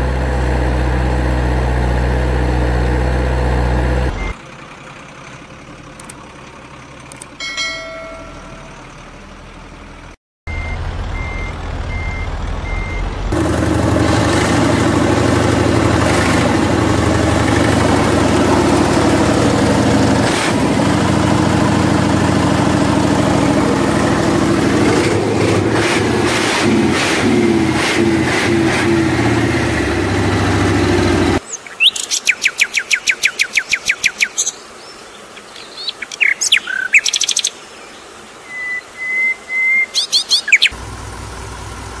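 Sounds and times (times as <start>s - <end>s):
truck engine running: 0.0s - 31.4s, 40.4s - 42.0s
quiet engine hum: 4.0s - 25.7s, 30.0s - 42.0s
engine knocking: 4.4s - 10.2s, 13.3s - 30.0s
birds singing trills: 31.4s - 40.8s.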